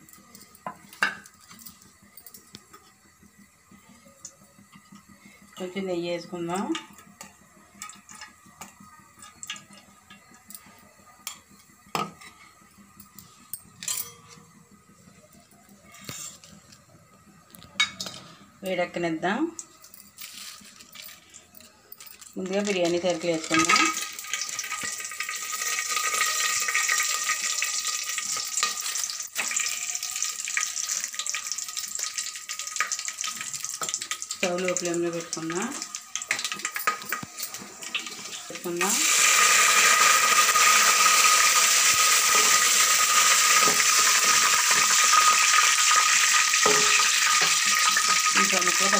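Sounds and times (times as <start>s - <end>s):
spices sizzling in hot oil: 0.0s - 13.8s, 17.8s - 48.9s
utensil clinking on metal pot: 13.5s - 14.4s, 36.2s - 37.7s, 46.5s - 48.7s.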